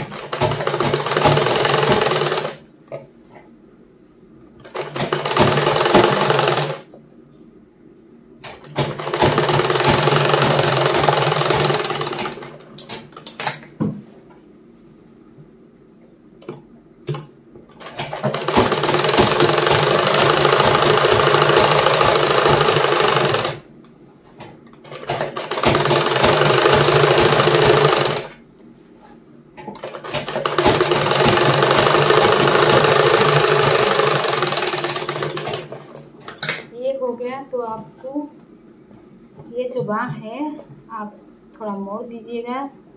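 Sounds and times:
sewing machine stitching: 0.0 - 2.6, 4.6 - 6.9, 8.5 - 13.4, 17.8 - 23.6, 24.8 - 28.4, 29.8 - 36.0
sewing machine clicks: 29.8 - 36.0.

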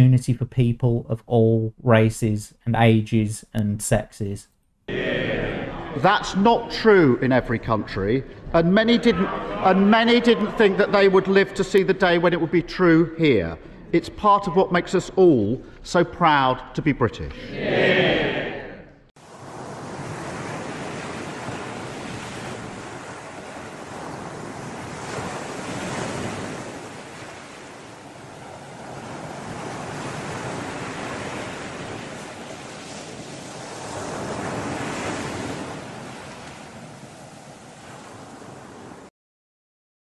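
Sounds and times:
ocean waves: 4.9 - 14.7, 17.5 - 39.1
wind: 19.2 - 39.1.

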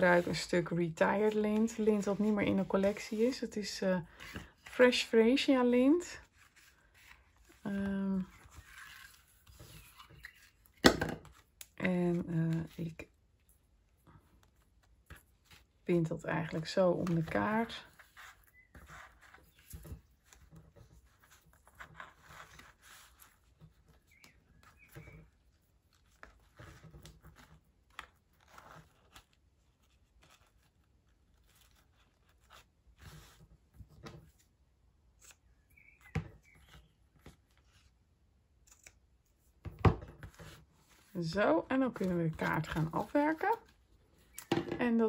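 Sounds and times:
ribbon and paper rustling: 0.0 - 35.5, 36.6 - 45.0.

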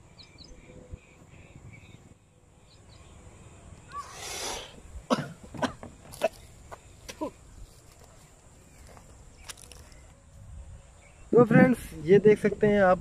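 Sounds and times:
faint bird chirps: 0.0 - 4.8
person coughing: 5.1 - 6.4.

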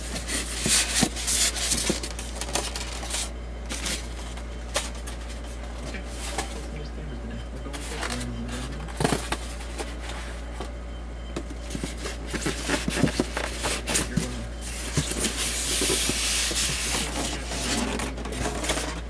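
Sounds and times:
cardboard knocks and scrapes: 11.6 - 18.1.

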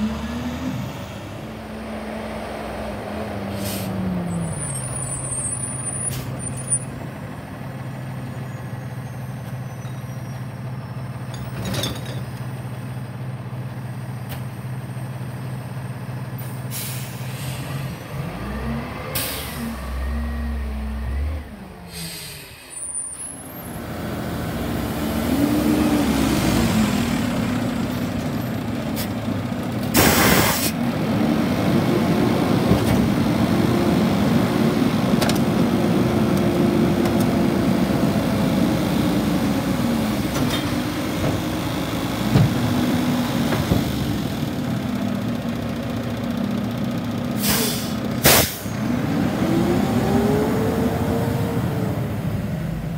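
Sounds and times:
air-brake hisses: 21.9 - 23.2, 30.0 - 30.8, 47.4 - 48.7
diesel truck engine running: 23.4 - 52.9.

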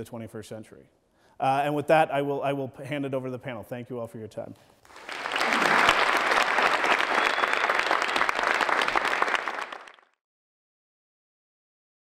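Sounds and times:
audience applauding: 4.9 - 10.2.

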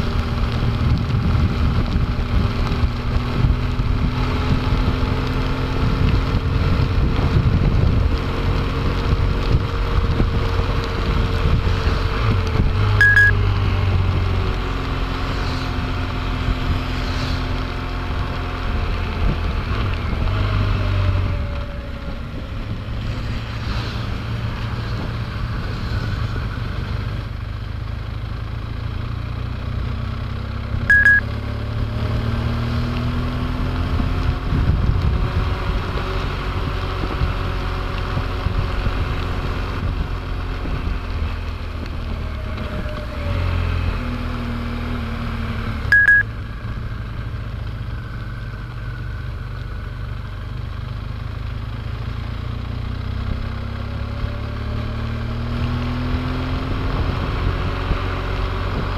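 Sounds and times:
short high beeps: 13.0 - 13.4, 30.9 - 31.2, 45.9 - 46.3
wet road hiss: 13.9 - 19.6, 22.8 - 28.5.

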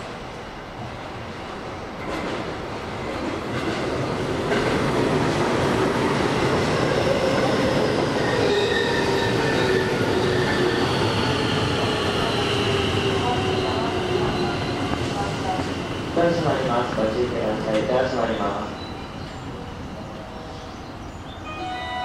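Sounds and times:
train wheels rumbling: 0.8 - 21.3
train brakes squealing: 6.9 - 15.6, 17.9 - 22.0.

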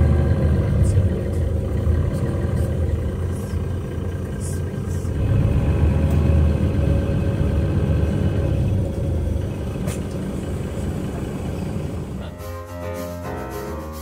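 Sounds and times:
engine idling rumble: 0.0 - 12.4
piano music: 12.2 - 14.0.

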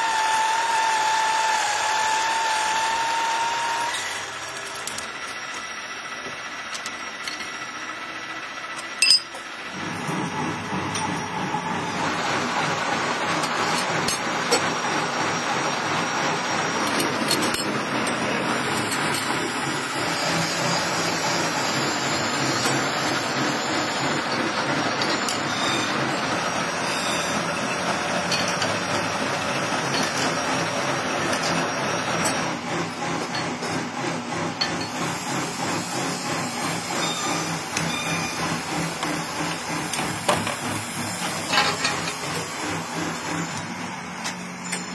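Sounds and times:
metalworking machinery clattering: 3.8 - 7.9, 8.7 - 44.9.

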